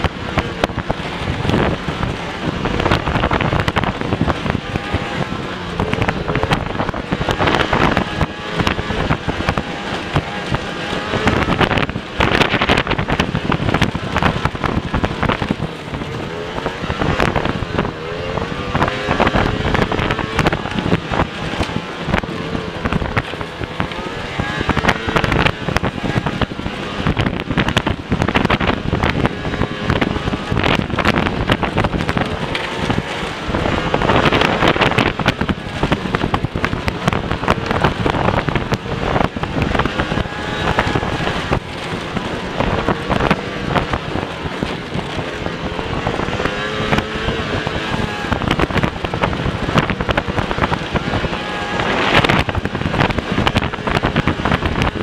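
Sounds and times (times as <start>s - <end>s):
sled knocking and clattering: 0.0s - 55.0s
snowmobile engine revving: 0.0s - 55.0s
wind buffeting microphone: 0.0s - 55.0s.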